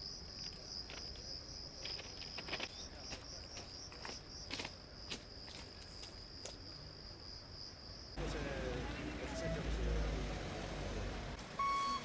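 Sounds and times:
crickets chirping: 0.0 - 8.2.

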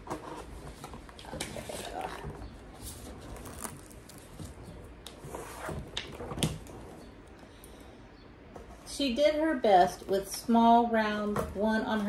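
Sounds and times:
paper-wrapped contents handled: 2.7 - 5.0.

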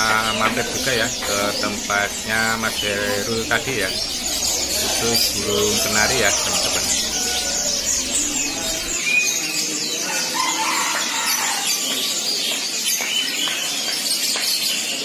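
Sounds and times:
songbirds chirping and trilling: 0.0 - 15.0.

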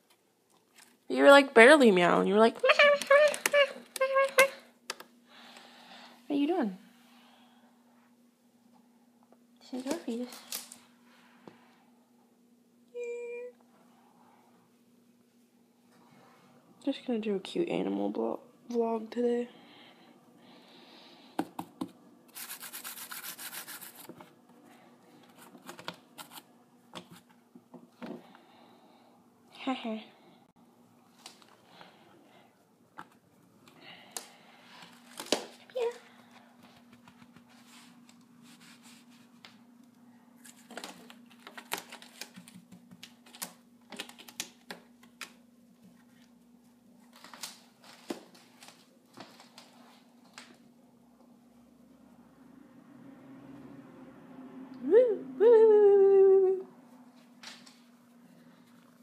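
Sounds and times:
faint steady hum: 0.0 - 59.0
cat scratching carpet and sisal: 22.3 - 24.3, 36.7 - 39.4.

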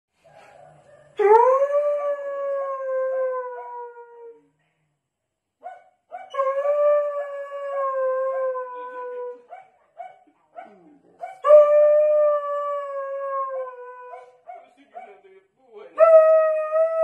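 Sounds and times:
dog howling: 10.6 - 14.4.

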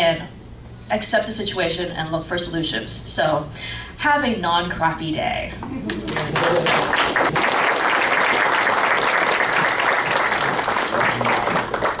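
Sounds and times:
audience applauding: 5.8 - 12.0.

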